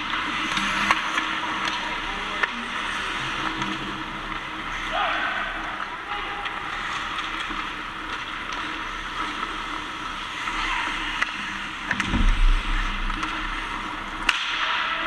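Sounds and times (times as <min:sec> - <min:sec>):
skates scraping ice: 0:00.0 - 0:15.0
stick hitting puck: 0:00.1 - 0:02.6, 0:14.2 - 0:15.0
low thud: 0:12.0 - 0:13.0.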